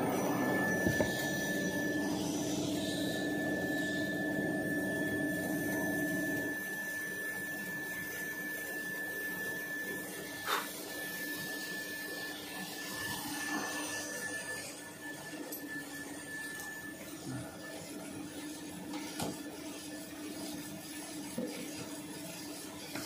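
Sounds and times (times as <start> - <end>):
machinery hum: 0.0 - 6.8
high machine whine: 0.0 - 23.0.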